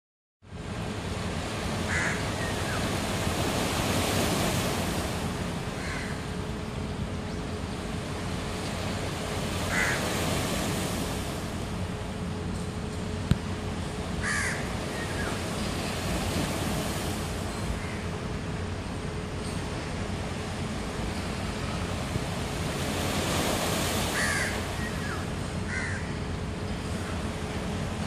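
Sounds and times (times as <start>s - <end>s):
bird calls: 1.9s - 3.2s, 23.7s - 27.4s
waves washing on rocky shore: 8.5s - 11.6s, 21.7s - 25.9s.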